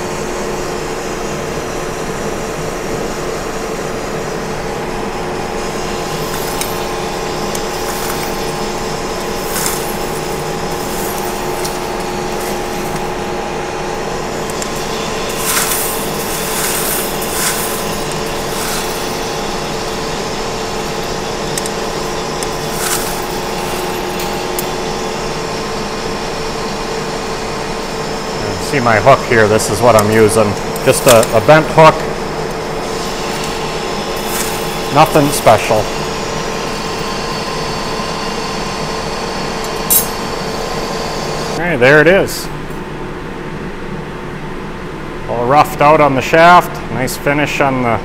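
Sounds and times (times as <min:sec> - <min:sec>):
lathe hum and whine: 0:00.0 - 0:48.0
high crackles of cutting: 0:06.0 - 0:13.2, 0:14.5 - 0:24.7.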